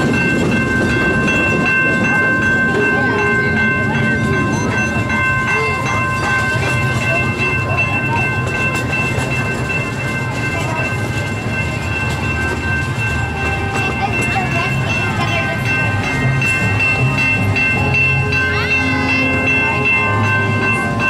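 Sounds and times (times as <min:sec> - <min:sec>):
train wheels rumbling on track: 0:00.0 - 0:21.0.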